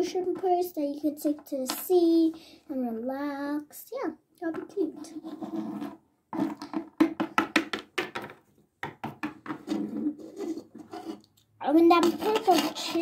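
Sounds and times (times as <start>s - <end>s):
plastic toys knocking on table: 6.4s - 9.8s.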